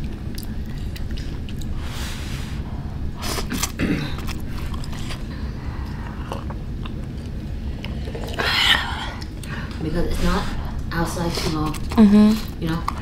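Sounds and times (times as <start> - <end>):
wet chewing clicks: 0.0 - 1.8.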